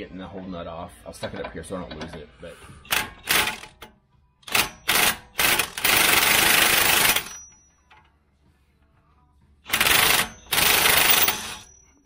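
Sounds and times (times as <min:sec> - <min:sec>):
impact wrench hammering on bolt: 0:09.7 - 0:11.7.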